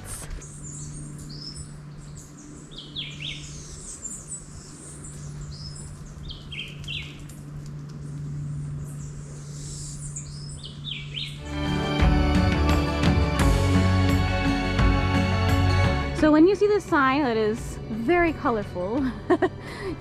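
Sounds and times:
wild birds chirping and whistling: 0.4s - 7.3s, 8.0s - 11.4s.

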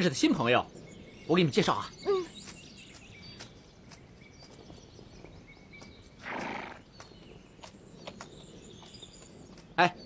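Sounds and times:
horse snorting: 6.2s - 6.8s.

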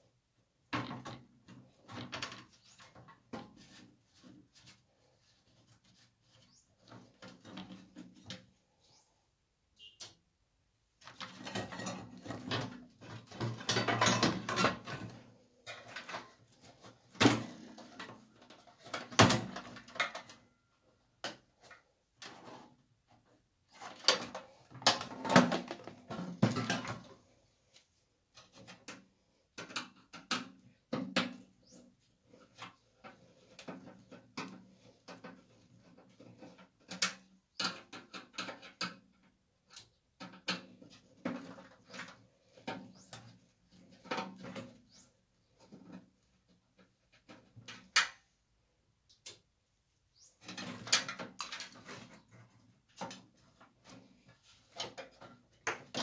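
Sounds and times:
plastic and metal parts rattling: 11.0s - 20.5s, 32.3s - 45.0s, 50.4s - 56.0s.

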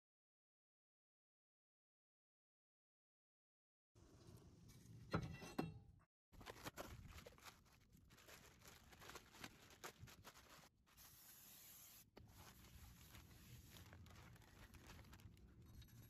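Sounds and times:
plastic wrapping crinkling: 6.4s - 10.8s, 12.2s - 15.8s
knocks and scrapes: 15.6s - 16.0s.

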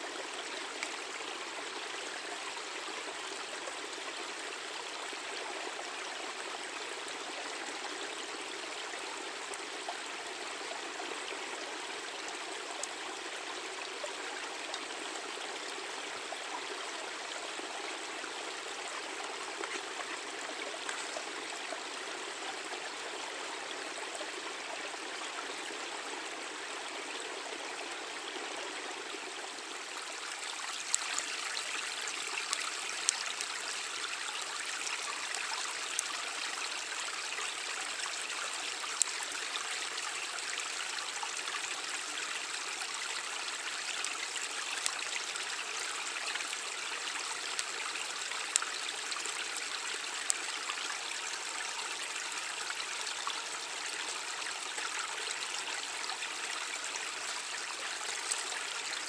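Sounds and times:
brook babbling: 0.0s - 59.0s
faint clicks: 0.8s - 1.0s, 19.2s - 21.8s, 29.9s - 39.4s, 43.3s - 50.7s, 56.8s - 59.0s.

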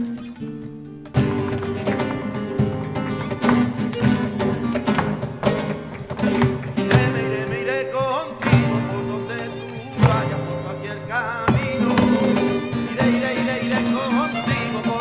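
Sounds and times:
percussive guitar strikes: 0.0s - 10.5s
flamenco acoustic guitar: 0.0s - 15.0s.

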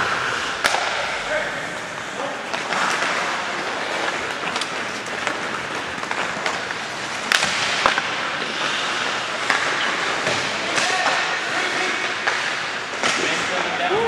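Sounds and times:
hockey sticks clacking: 0.0s - 14.0s
skates scraping ice: 0.0s - 14.0s
stick cracking on puck: 0.6s - 1.1s, 2.5s - 8.8s.

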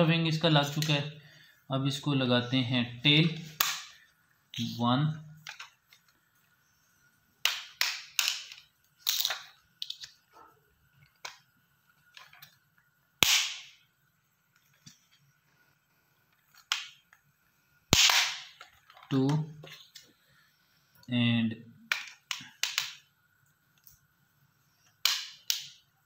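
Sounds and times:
plastic toy parts snapping: 7.4s - 10.1s, 25.0s - 25.8s.

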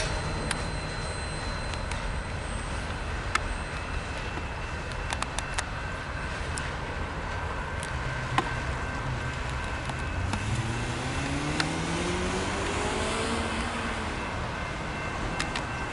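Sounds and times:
train wheel clicks: 0.0s - 5.8s
train rumbling on rails: 0.0s - 15.9s
vehicle engine accelerating: 10.1s - 14.4s.

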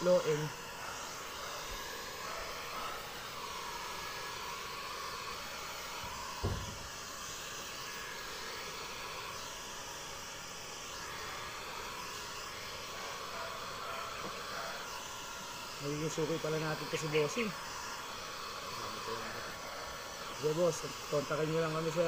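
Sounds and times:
heat gun hot-air hiss: 0.0s - 22.0s
brief knock: 6.4s - 6.8s.

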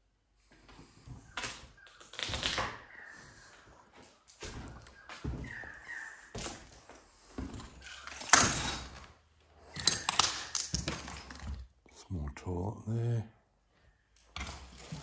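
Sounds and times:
footsteps on debris: 1.2s - 11.7s.

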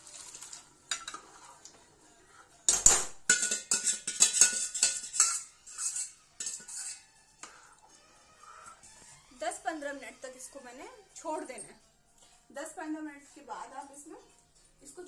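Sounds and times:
ladle knocking in a steel bowl: 2.7s - 6.9s.

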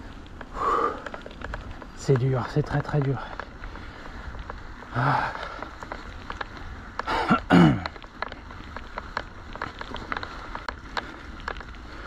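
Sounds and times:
patter of small clicks: 0.1s - 7.1s, 7.8s - 12.0s.

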